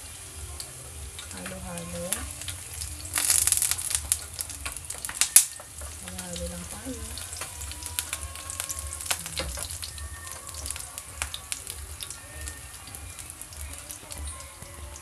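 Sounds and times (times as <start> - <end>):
garlic sizzling in oil: 0.0 - 15.0
spattering oil pops: 0.4 - 15.0.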